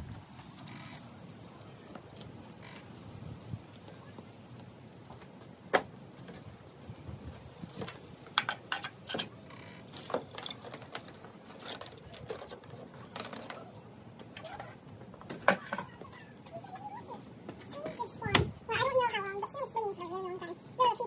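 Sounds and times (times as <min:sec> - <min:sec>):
objects clicking and knocking: 0:07.8 - 0:16.2.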